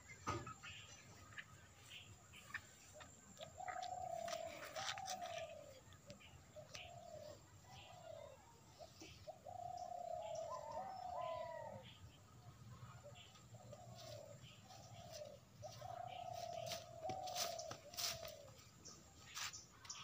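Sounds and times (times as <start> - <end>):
bird cooing: 2.9 - 12.0, 12.8 - 18.7.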